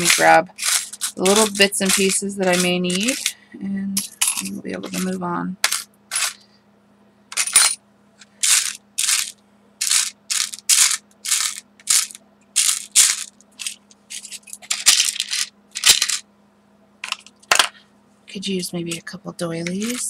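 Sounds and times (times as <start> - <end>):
small items rummaged in a bin: 0.0 - 3.4, 4.2 - 6.4, 7.4 - 16.2, 18.9 - 20.0.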